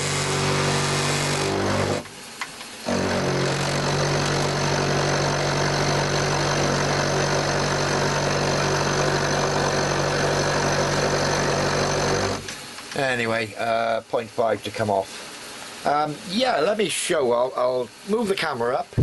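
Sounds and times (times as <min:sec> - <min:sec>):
milling machine cutting steel: 0:00.0 - 0:02.2, 0:02.8 - 0:12.5.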